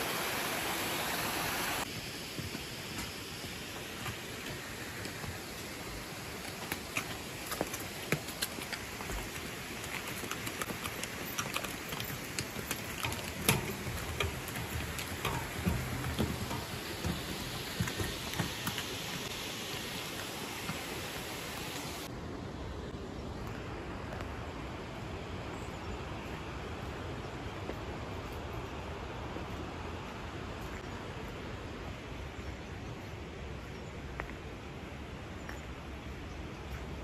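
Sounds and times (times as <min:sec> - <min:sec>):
water rushing: 0:00.0 - 0:02.0, 0:02.6 - 0:22.1
water dripping and splashing: 0:06.4 - 0:22.1.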